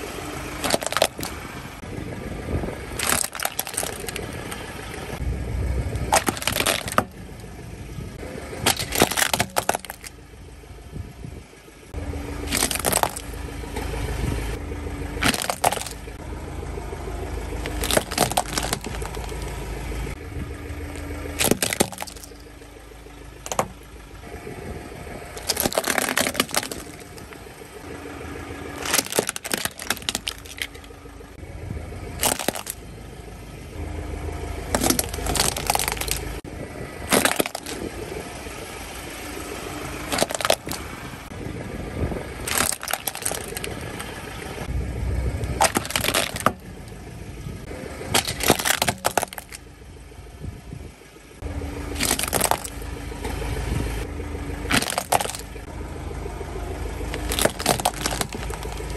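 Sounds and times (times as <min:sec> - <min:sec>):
car engine rumbling: 0:00.0 - 0:58.9
plastic toys cracking under tyre: 0:00.6 - 0:01.4, 0:02.9 - 0:04.6, 0:06.1 - 0:07.2, 0:08.6 - 0:10.2, 0:12.4 - 0:13.4, 0:15.2 - 0:16.1, 0:17.6 - 0:19.5, 0:21.3 - 0:22.4, 0:23.4 - 0:23.8, 0:25.4 - 0:27.3, 0:28.8 - 0:30.9, 0:32.2 - 0:32.8, 0:34.7 - 0:36.4, 0:37.0 - 0:37.9, 0:40.1 - 0:40.8, 0:42.4 - 0:44.2, 0:45.5 - 0:46.8, 0:48.1 - 0:49.6, 0:51.9 - 0:52.8, 0:54.7 - 0:55.5, 0:57.0 - 0:58.9.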